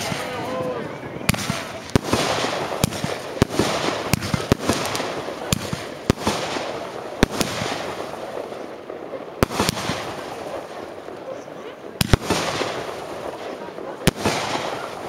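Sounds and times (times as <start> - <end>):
continuous hiss: 0.0 - 15.0
firework bangs: 0.0 - 15.0.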